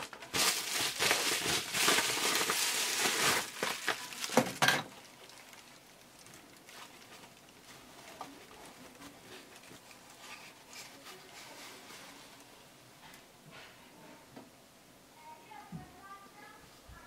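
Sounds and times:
bubble wrap crinkling: 0:00.0 - 0:12.5
soft rustling of cloth wrapping: 0:00.3 - 0:14.3.

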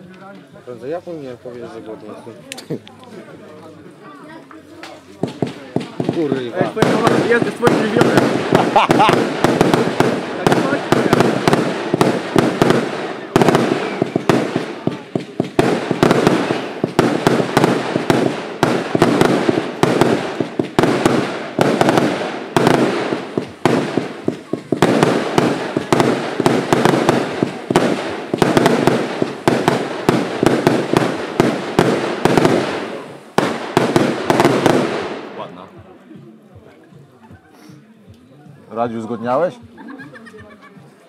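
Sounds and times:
fireworks banging: 0:04.6 - 0:35.9.

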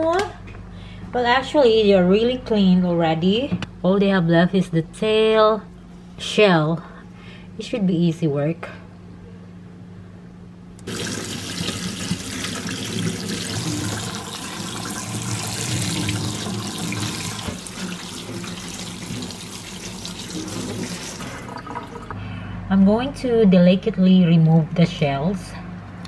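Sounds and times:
tap water splashing into colander: 0:10.8 - 0:22.2.

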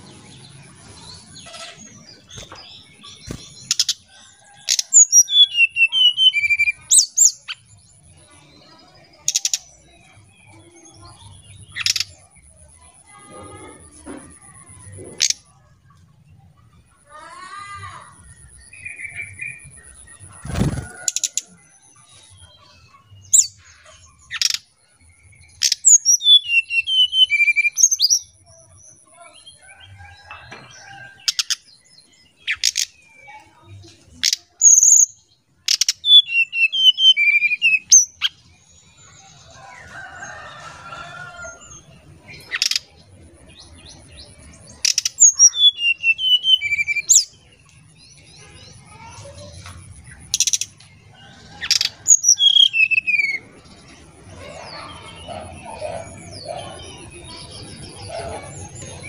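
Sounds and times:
bird singing whistled notes: 0:05.1 - 0:07.6, 0:25.3 - 0:28.4, 0:35.8 - 0:38.3, 0:45.0 - 0:47.4, 0:52.1 - 0:53.4.

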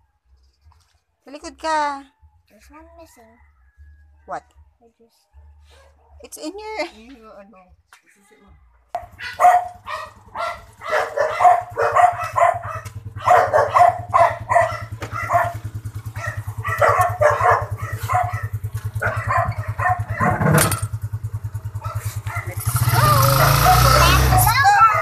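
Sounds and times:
dog barking: 0:05.3 - 0:06.3, 0:08.9 - 0:20.6, 0:21.6 - 0:25.0
motorcycle engine idling: 0:09.0 - 0:25.0.

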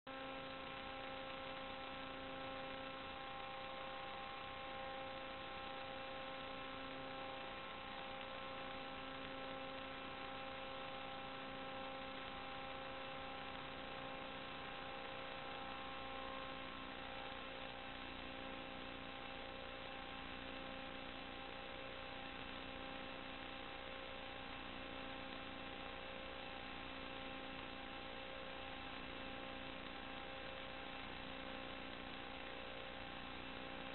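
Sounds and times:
constant electronic tones: 0:00.1 - 0:33.9
electrical hum and hiss: 0:00.1 - 0:33.9.

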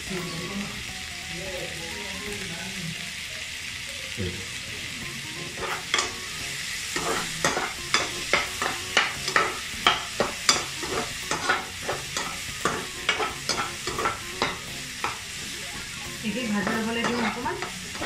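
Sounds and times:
vegetables sizzling: 0:00.0 - 0:18.0
metal spatula scraping wok: 0:05.5 - 0:06.2, 0:06.9 - 0:15.3, 0:16.2 - 0:18.0.

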